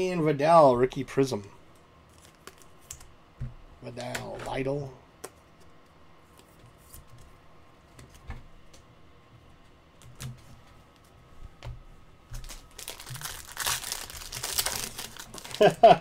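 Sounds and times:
foil pack tearing and crinkling: 12.4s - 16.0s.

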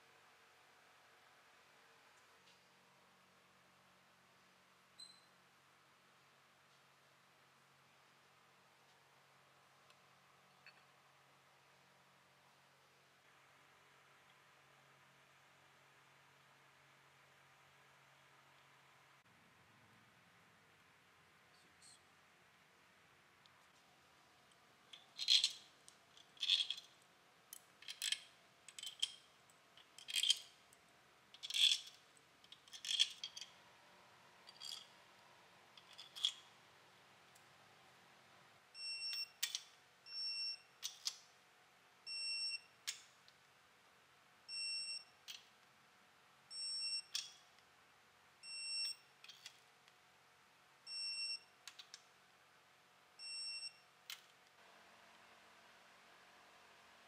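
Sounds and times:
bolts and washers clinking: 24.5s - 30.7s, 31.4s - 33.6s, 34.4s - 35.0s, 35.7s - 36.6s, 39.1s - 39.8s, 40.8s - 41.3s, 47.0s - 47.5s, 49.2s - 49.6s.

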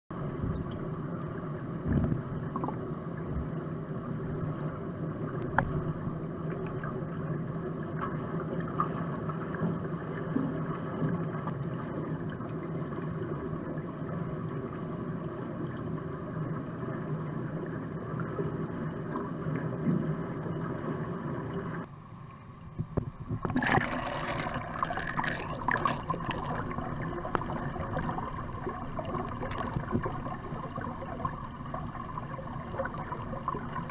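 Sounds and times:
muffled underwater churning: 0.1s - 33.9s
swimmer strokes and kicks: 22.7s - 33.9s.

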